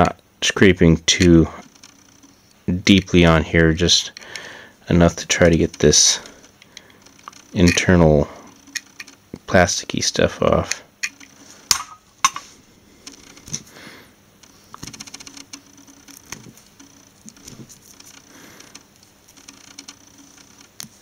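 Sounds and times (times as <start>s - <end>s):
fingers handling wire: 5.0s - 9.2s, 14.4s - 21.0s.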